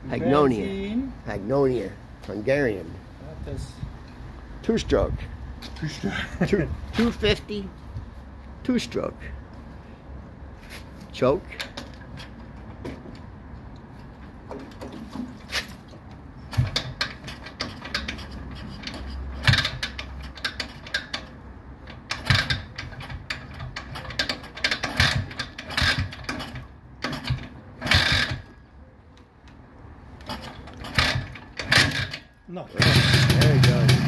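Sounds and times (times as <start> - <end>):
motorcycle kickstarter clattering: 11.5 - 13.2, 14.1 - 28.6, 30.2 - 34.0.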